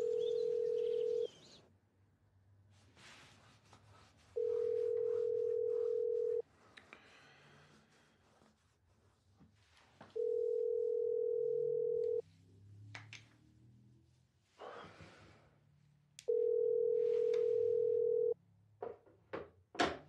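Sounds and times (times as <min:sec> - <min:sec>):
telephone ringing tone: 0:00.0 - 0:01.4, 0:04.4 - 0:06.4, 0:10.2 - 0:12.2, 0:16.3 - 0:18.4.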